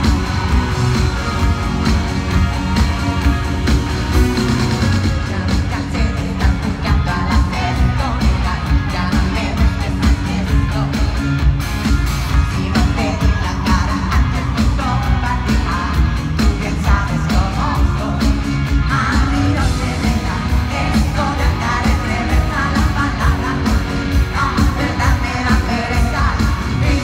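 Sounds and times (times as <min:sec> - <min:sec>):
live band playing: 0:00.0 - 0:27.0
woman singing: 0:05.0 - 0:11.3, 0:12.5 - 0:27.0.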